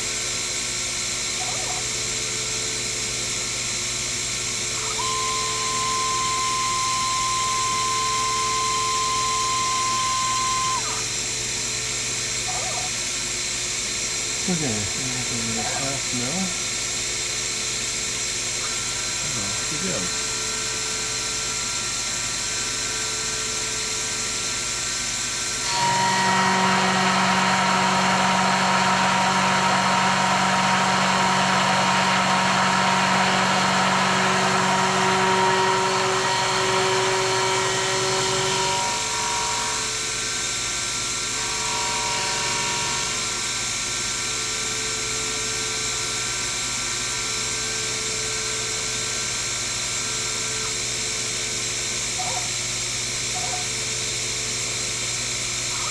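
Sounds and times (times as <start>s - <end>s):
mill spindle whine: 0.0s - 55.9s
end mill cutting brass: 25.6s - 44.2s.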